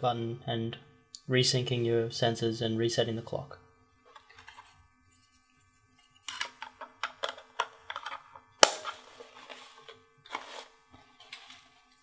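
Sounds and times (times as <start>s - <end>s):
plastic cover snapping shut: 7.1s - 9.0s.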